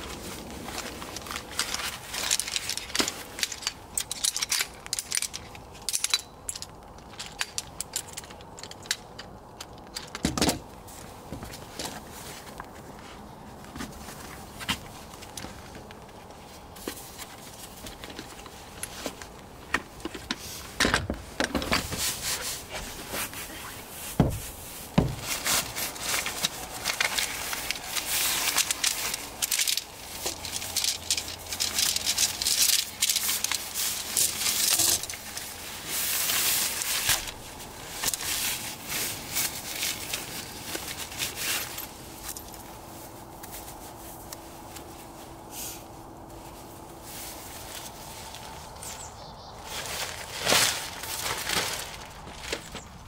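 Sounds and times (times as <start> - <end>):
rustling and rubbing: 10.8 - 53.0.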